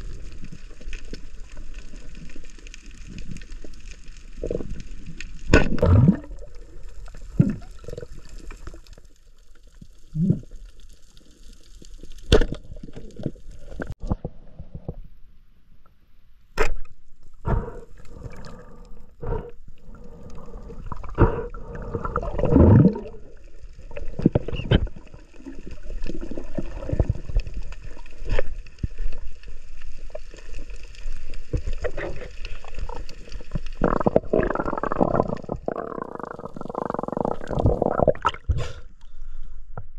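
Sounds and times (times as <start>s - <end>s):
water gurgling and sloshing: 0.0s - 15.2s, 16.6s - 39.9s.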